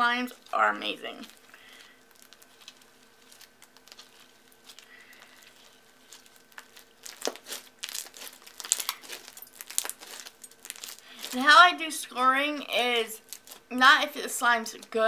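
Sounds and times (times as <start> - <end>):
slime crackling and popping: 0.3 - 11.6, 13.2 - 13.7.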